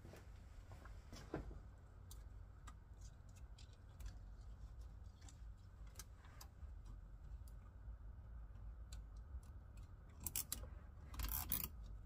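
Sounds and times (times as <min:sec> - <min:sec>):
low steady hum: 0:00.0 - 0:12.0
small clicks of handling wires: 0:00.1 - 0:07.8, 0:08.5 - 0:12.0.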